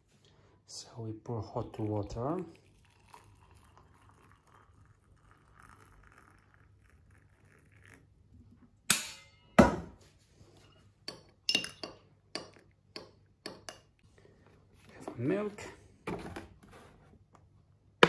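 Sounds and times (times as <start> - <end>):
water poured into mug: 1.5 - 8.3.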